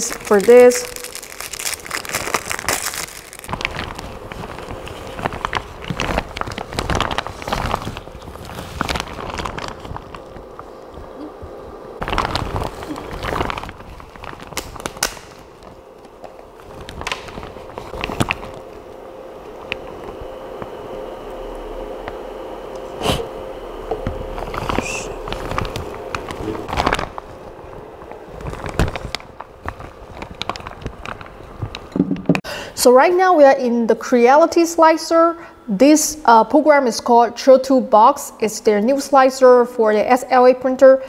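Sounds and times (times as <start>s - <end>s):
plastic raincoat rustling: 0.0s - 10.8s, 12.0s - 15.8s, 16.6s - 18.9s, 24.3s - 31.8s
faint steady hum: 0.0s - 41.0s.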